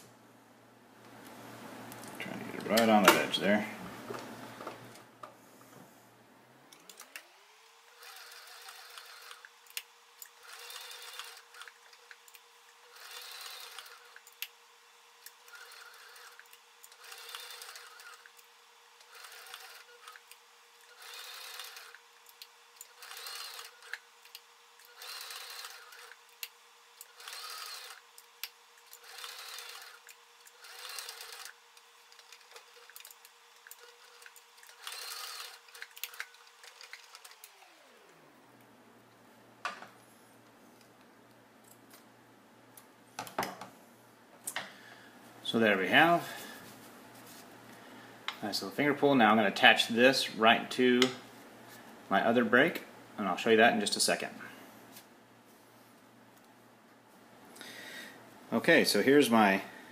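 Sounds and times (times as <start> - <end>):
sewing machine stitching: 7.9 - 9.5, 10.3 - 12.1, 12.8 - 14.3, 15.4 - 18.4, 19.0 - 22.0, 22.8 - 24.0, 24.8 - 26.2, 27.0 - 28.0, 28.8 - 38.0.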